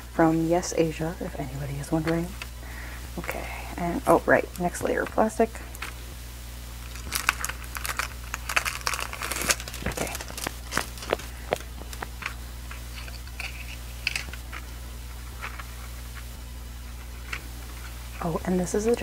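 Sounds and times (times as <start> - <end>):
cellophane crinkling and tearing: 6.8 - 14.6.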